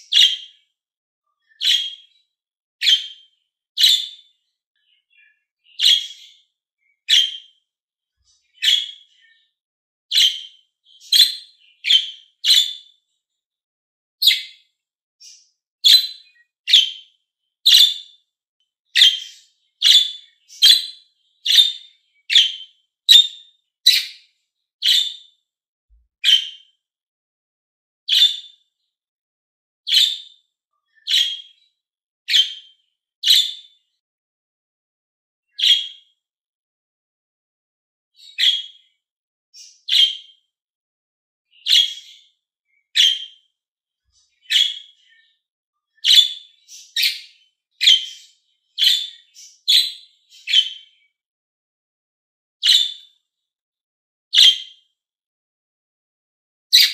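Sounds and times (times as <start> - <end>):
budgerigars chirping: 0.0 - 0.5, 1.6 - 2.1, 2.8 - 3.2, 3.8 - 4.2, 5.1 - 6.4, 7.1 - 7.5, 8.6 - 9.1, 10.1 - 12.8, 15.2 - 17.0, 17.7 - 18.0, 19.0 - 24.2, 24.8 - 25.2, 26.2 - 26.6, 28.1 - 28.5, 29.9 - 30.3, 31.1 - 31.5, 35.6 - 35.9, 38.2 - 38.8, 39.6 - 40.2, 41.6 - 42.2, 43.0 - 43.3, 44.4 - 45.0, 46.0 - 50.8, 52.6 - 53.0.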